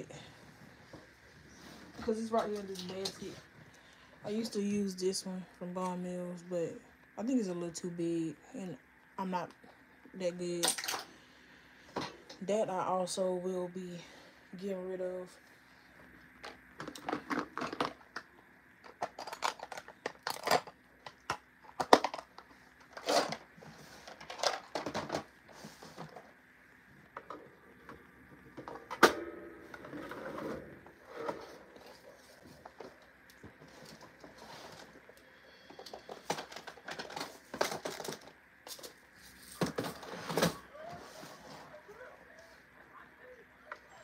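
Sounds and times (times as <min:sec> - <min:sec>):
small hard objects clattering: 0:18.8 - 0:25.2, 0:35.7 - 0:40.2.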